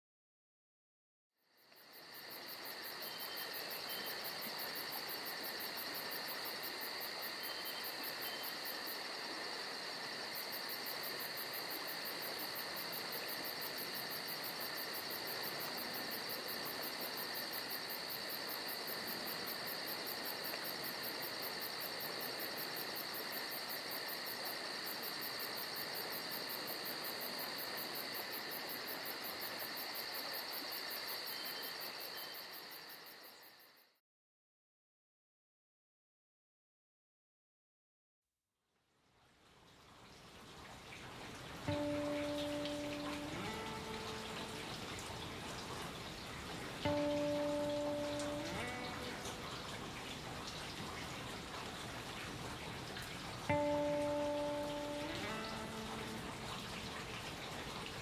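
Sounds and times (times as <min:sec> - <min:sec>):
trilling insects: 0:01.4 - 0:34.0, 0:41.5 - 0:50.8, 0:53.5 - 0:58.0.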